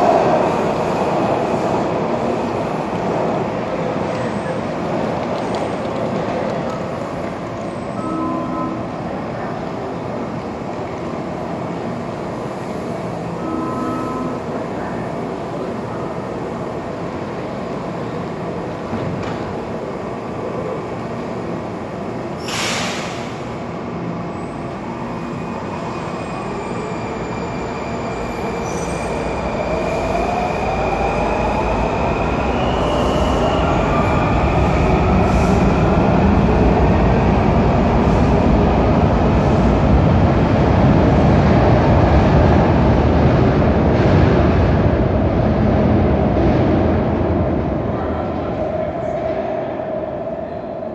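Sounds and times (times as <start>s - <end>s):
subway train rumble: 0.0s - 50.9s
short hiss: 22.4s - 23.3s.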